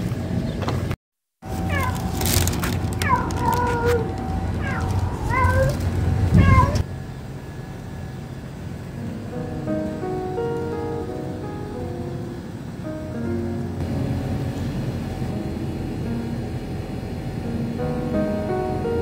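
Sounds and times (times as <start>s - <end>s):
low rumble: 1.4s - 9.3s, 12.4s - 19.0s
cats mewing: 1.5s - 6.9s.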